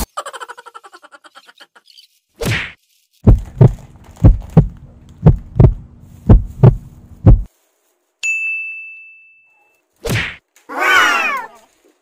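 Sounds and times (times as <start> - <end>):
heartbeat thumps: 3.2 - 7.5
low hum: 3.3 - 7.5
bright ding: 8.2 - 9.8.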